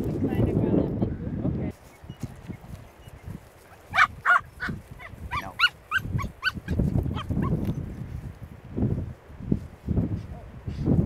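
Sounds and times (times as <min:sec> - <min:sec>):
dog yelping and whining: 0:03.9 - 0:07.6.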